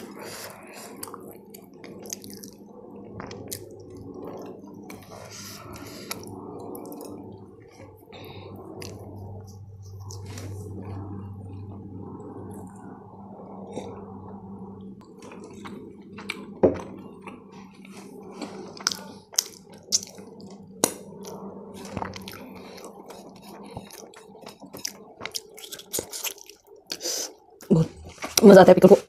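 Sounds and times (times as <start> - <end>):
wet mouth clicks and chewing: 0.9 - 2.6, 18.8 - 27.0.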